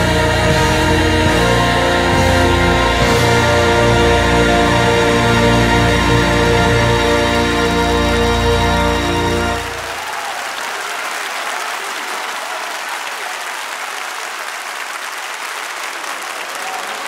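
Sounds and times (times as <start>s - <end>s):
orchestra and choir chord: 0.0s - 10.0s
audience applauding: 7.8s - 17.0s.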